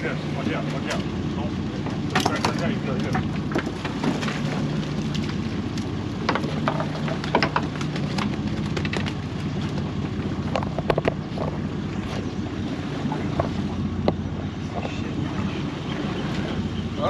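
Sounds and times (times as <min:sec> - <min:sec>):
boat engine idling: 0:00.0 - 0:17.0
sharp clicks and knocks: 0:06.2 - 0:11.6.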